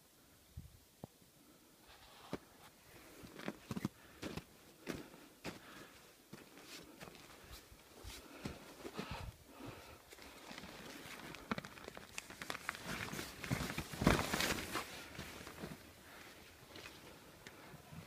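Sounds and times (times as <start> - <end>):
jacket fabric rustling: 12.2 - 15.9.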